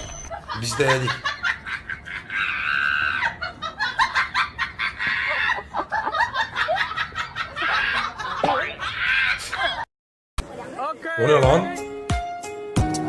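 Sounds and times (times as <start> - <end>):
woman crying out and laughing: 4.8 - 5.9, 7.4 - 9.8.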